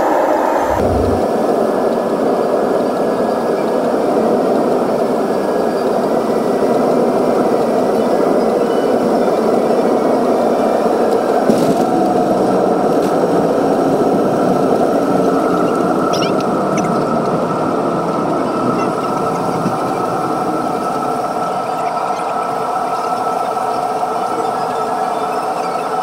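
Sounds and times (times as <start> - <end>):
faint whine: 0.0 - 1.6
jet engine roar in cabin: 0.0 - 26.0.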